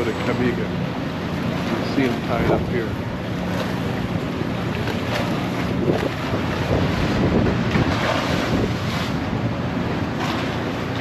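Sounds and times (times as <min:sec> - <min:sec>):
choppy sea water: 0:00.0 - 0:11.0
low ship engine hum: 0:00.0 - 0:11.0
wind noise on microphone: 0:05.1 - 0:10.4.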